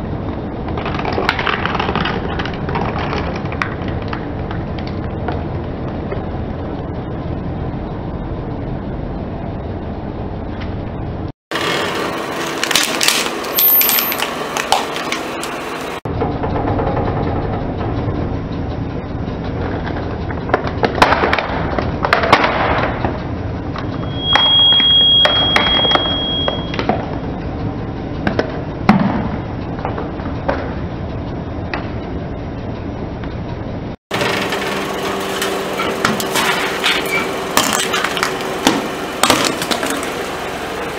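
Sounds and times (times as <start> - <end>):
tyre rolling rumble: 0.1 - 7.2
toy van crushing cracks: 12.5 - 13.5, 37.6 - 38.4
high squeal: 13.4 - 14.3, 23.9 - 26.8, 35.0 - 37.9.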